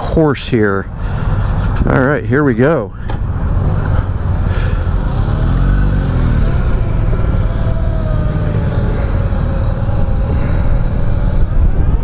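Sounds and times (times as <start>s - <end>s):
heavy low rumble: 0.0s - 12.0s
electric motorcycle drive whine: 3.0s - 12.0s.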